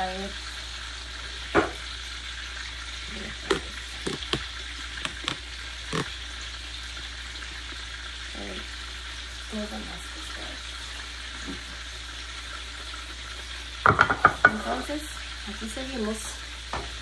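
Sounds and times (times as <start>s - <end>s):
fish frying in hot oil: 0.0s - 17.0s
oil popping: 3.1s - 6.3s.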